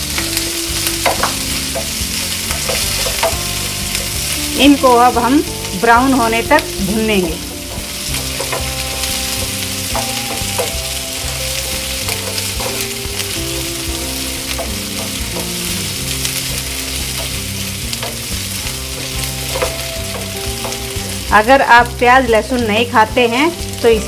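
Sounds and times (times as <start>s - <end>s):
wooden spatula stirring in pan: 0.0s - 21.8s
onion sizzling in oil: 0.0s - 24.0s.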